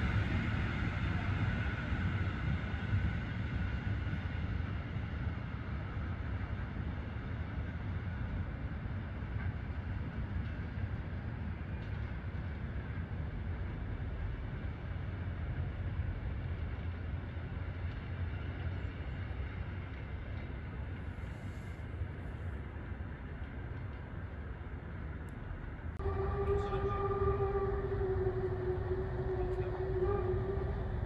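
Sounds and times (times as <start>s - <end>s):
steam train rumbling: 0.0s - 31.0s.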